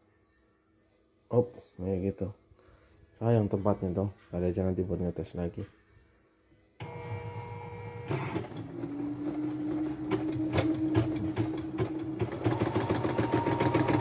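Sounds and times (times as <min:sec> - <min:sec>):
embroidery machine motor whine: 0:06.8 - 0:14.0
rapid needle stitching: 0:09.6 - 0:14.0.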